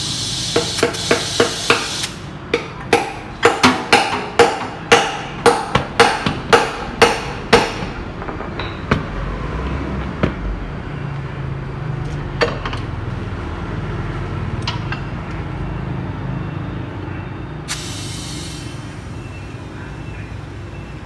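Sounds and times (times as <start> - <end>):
compressed air hissing: 0.0 - 2.3, 17.7 - 19.3
clicks and knocks of wheel: 2.5 - 10.4.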